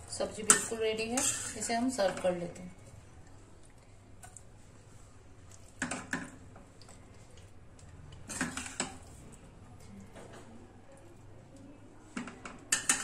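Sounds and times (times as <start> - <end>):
steel spoon scraping a pan: 0.2 - 2.1, 8.3 - 9.0.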